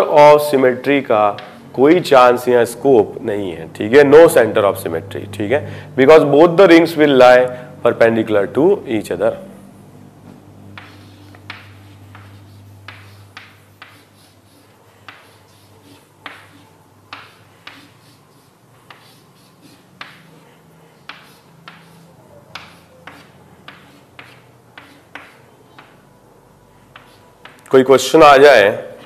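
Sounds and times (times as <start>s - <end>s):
writing tool tapping on surface: 10.8s - 14.2s, 15.0s - 15.5s, 16.2s - 18.0s, 18.9s - 20.4s, 21.0s - 26.0s.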